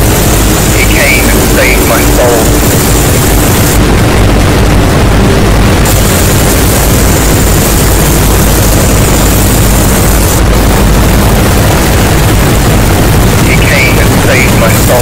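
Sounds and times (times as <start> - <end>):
high hiss: 0.0 - 3.8
distorted noise music: 0.0 - 15.0.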